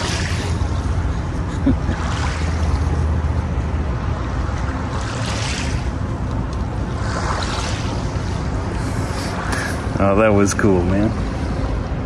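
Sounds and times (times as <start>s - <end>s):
waves washing on pebbles: 4.4s - 10.4s.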